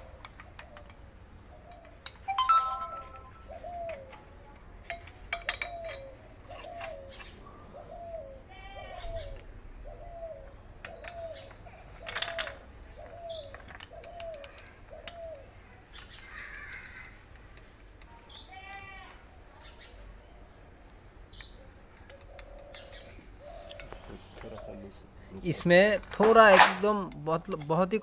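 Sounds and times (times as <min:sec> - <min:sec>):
bird calling: 0:00.0 - 0:04.3, 0:05.4 - 0:17.4, 0:21.3 - 0:25.3
metal clicks and taps from spanner: 0:04.8 - 0:06.1.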